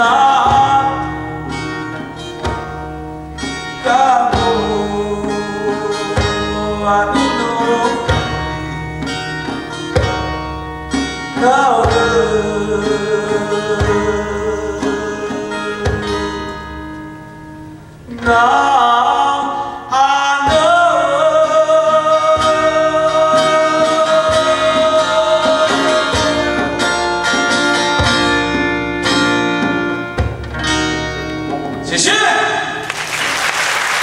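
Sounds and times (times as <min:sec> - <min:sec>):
man singing: 0:00.0 - 0:02.5, 0:03.8 - 0:08.7, 0:11.3 - 0:16.6, 0:18.1 - 0:27.6
acoustic guitar: 0:00.0 - 0:34.0.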